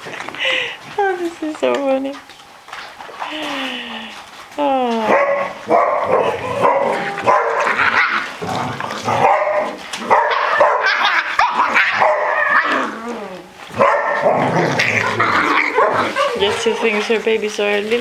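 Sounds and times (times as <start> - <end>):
puppies yipping and barking: 5.1 - 17.2.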